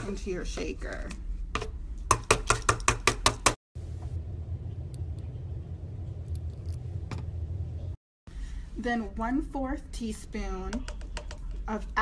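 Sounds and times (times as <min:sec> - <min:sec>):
low steady hum: 0:03.8 - 0:10.5.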